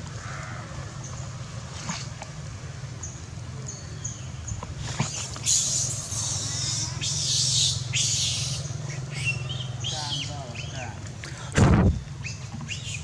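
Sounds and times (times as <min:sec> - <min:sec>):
baby monkey screaming: 0:05.0 - 0:10.7.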